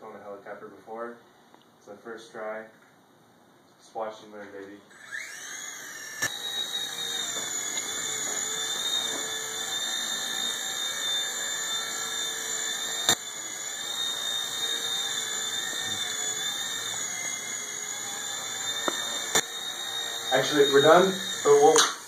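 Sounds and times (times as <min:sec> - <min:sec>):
toy helicopter rotors whining: 0:04.9 - 0:22.0.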